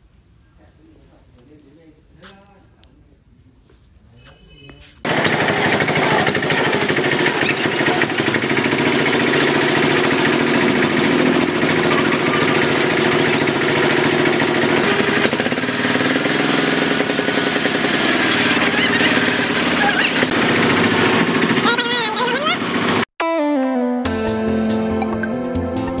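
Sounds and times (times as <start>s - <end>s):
dump truck engine chugging: 5.1s - 23.1s.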